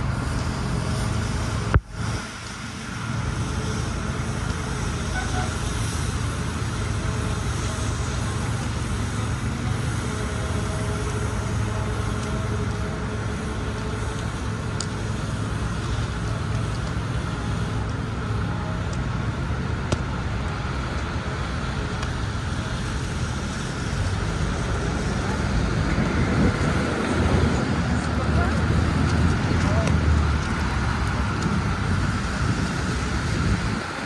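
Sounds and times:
street traffic rumble: 0.0s - 34.0s.

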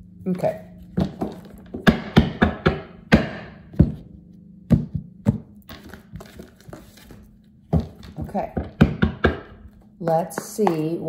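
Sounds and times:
card rustling: 5.7s - 7.6s
cards shuffling: 5.7s - 8.1s.

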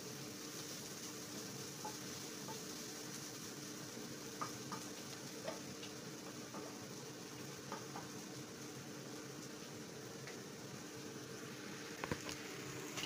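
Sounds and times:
food sizzling in a pan: 0.0s - 13.0s
spatula tapping a pan: 1.8s - 2.7s, 4.4s - 5.7s, 6.5s - 6.8s, 7.7s - 8.2s.

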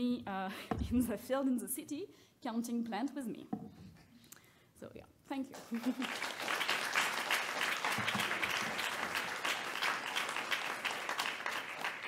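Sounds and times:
audience applause: 5.6s - 12.0s.

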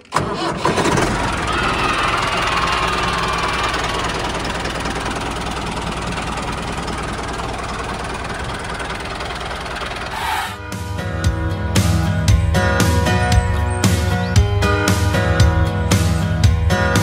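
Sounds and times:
tractor engine running: 0.0s - 12.5s
music: 10.1s - 17.0s.

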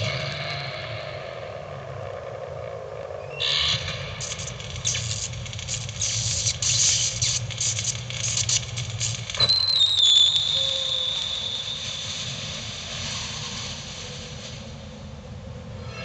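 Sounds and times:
scratching and rattling: 3.9s - 9.4s.

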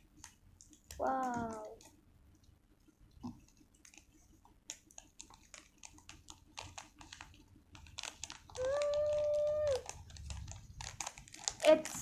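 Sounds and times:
foil sachets crinkling: 5.0s - 12.0s
person holding a long sound: 8.6s - 9.9s.

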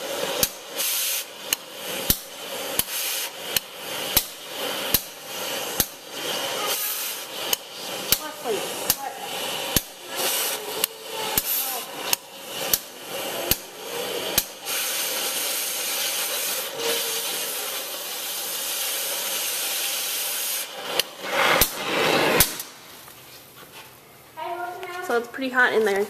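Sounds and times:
cutting torch hissing: 0.0s - 22.9s
sharp cracks of torch: 0.0s - 22.9s.

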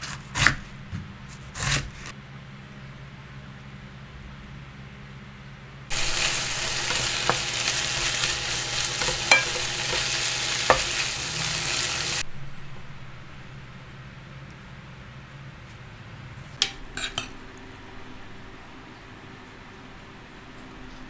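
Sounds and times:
food sizzling in a pan: 5.9s - 12.2s
spatula knocking against pan: 9.0s - 11.0s.

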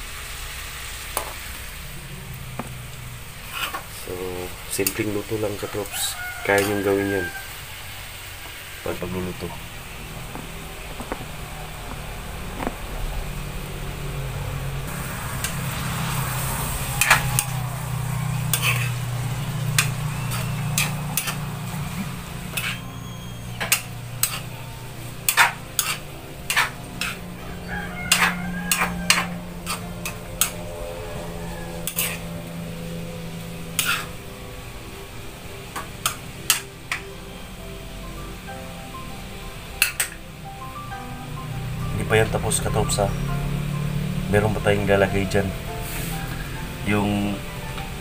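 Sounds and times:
low hum: 0.0s - 5.7s, 7.2s - 48.0s
food sizzling: 0.0s - 48.0s
metal spatula scraping a wok: 3.2s - 4.0s, 5.6s - 7.6s, 14.9s - 34.2s.

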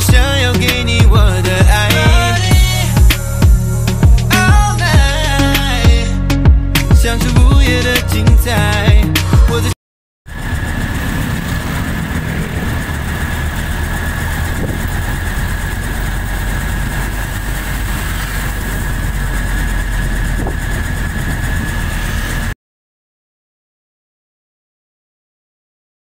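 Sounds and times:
thin steady whine: 10.3s - 22.5s
vehicle engine running: 10.3s - 22.6s.

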